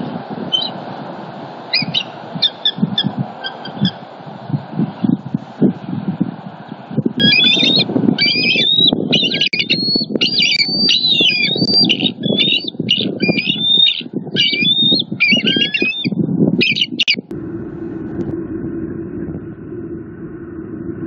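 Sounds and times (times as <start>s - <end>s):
low rumbling noise: 0.0s - 9.2s, 16.2s - 21.0s
eagles giving alarm calls: 0.5s - 0.9s, 1.6s - 4.2s, 7.2s - 17.2s.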